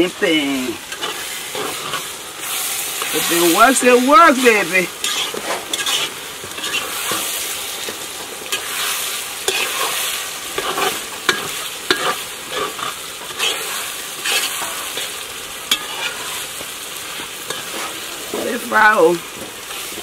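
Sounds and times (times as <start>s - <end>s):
greens sizzling in a pot: 0.0s - 20.0s
metal spoon scraping a pot: 5.0s - 7.3s, 8.5s - 10.0s, 10.6s - 15.1s.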